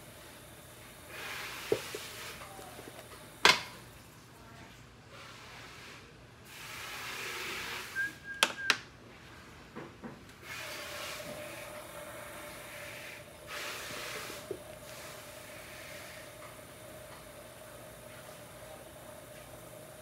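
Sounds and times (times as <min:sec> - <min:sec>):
clay rubbing and scraping: 0:01.1 - 0:03.0.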